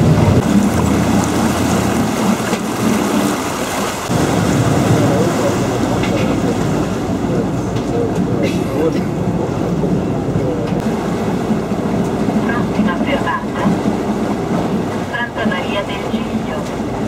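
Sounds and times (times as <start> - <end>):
wind on microphone: 0.0 - 8.4
boat engine rumble: 0.0 - 17.0
rushing water: 0.0 - 17.0.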